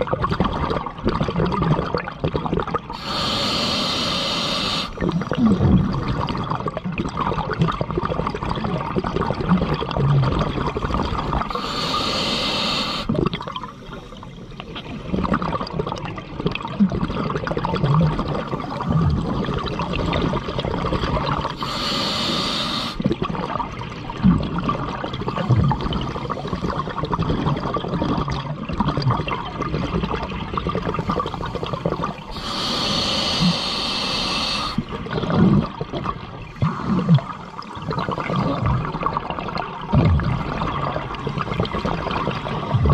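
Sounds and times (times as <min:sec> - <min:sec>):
exhaled bubbles hissing: 0:00.0 - 0:42.9
underwater rumble: 0:03.0 - 0:42.9.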